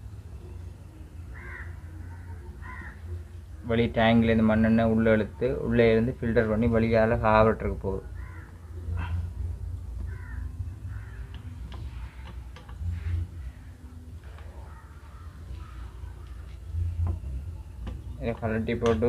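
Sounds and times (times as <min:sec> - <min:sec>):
crow-like bird caws: 0:01.3 - 0:03.2, 0:08.1 - 0:09.3, 0:10.0 - 0:11.6, 0:14.4 - 0:16.5.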